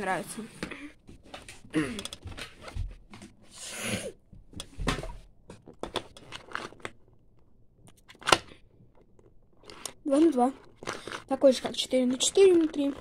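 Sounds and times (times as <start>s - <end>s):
plastic rustle: 9.0s - 13.0s.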